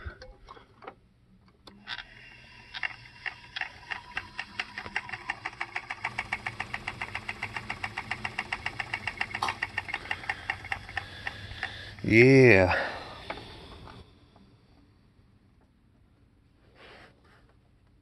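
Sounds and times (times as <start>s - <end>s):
turntable rhythmic ticking: 3.6s - 11.6s.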